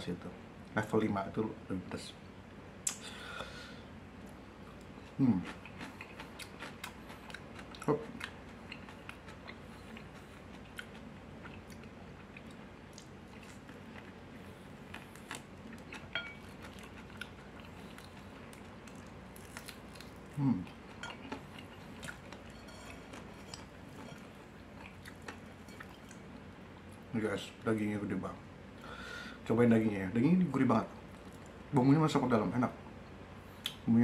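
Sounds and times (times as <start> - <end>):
person chewing crispy food: 4.7 - 26.4.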